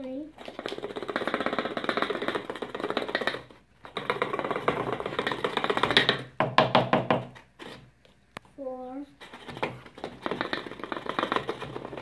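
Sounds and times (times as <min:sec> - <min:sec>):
plastic funnel rattling in bottle: 0:00.4 - 0:06.4, 0:09.2 - 0:12.0.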